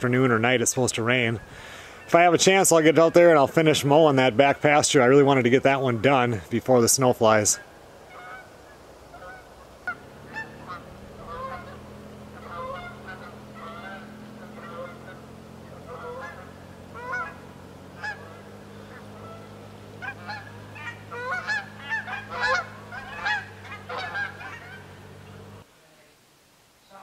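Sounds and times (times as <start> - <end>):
geese honking: 0.0 - 25.7
steady low hum: 7.6 - 25.7.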